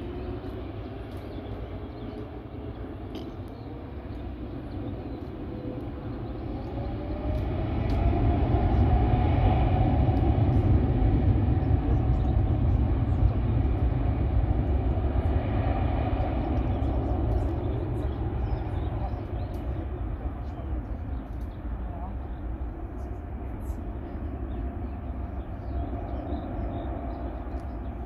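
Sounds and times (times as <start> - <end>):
jet engine whine rising: 0.0 - 21.4
jet engines deep rumble: 0.0 - 28.0.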